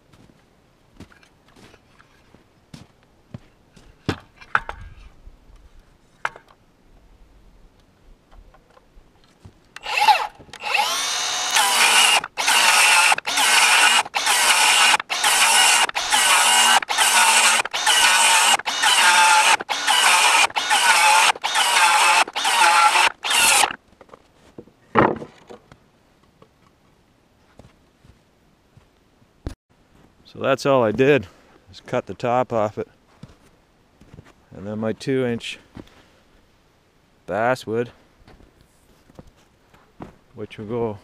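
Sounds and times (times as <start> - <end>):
circular saw cutting wood: 9.8 - 23.8.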